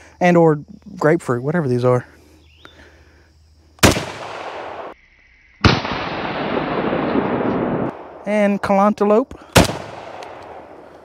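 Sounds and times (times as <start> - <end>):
rifle shots: 3.8 - 5.0, 5.6 - 8.2, 9.5 - 10.9.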